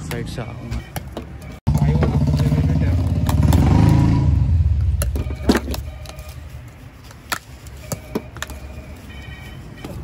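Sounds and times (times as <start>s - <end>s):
traffic rumble: 0.0s - 10.0s.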